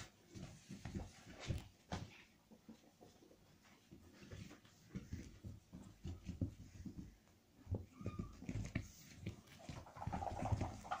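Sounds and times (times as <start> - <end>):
soft thumps and rustles on blanket: 0.0 - 2.2, 3.9 - 9.8
faint kitten squeak: 7.8 - 8.5.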